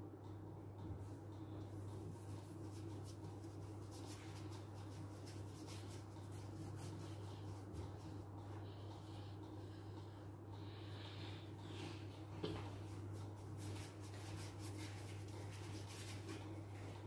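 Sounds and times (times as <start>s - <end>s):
steady low hum: 0.0s - 17.0s
paintbrush swishing on paper: 1.9s - 8.5s, 12.7s - 17.0s.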